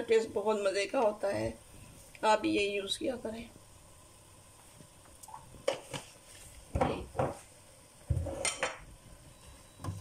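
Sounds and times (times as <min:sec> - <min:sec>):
kitchenware knocks and clinks: 0:08.1 - 0:08.8.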